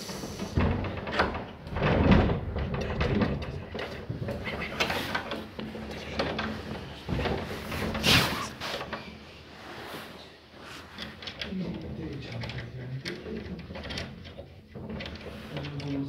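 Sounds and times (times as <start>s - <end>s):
wooden door knocking and rattling: 0.4s - 8.0s
low voices: 2.6s - 8.8s.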